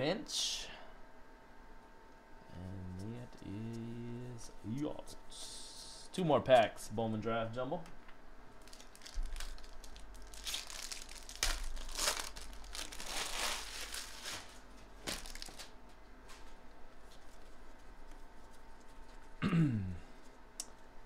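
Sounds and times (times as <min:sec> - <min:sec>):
foil wrapper tearing and crinkling: 0:08.6 - 0:15.8.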